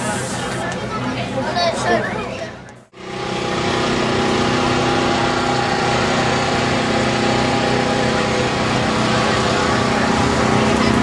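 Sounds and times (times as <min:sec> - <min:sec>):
small engine running steadily: 0:02.9 - 0:11.0.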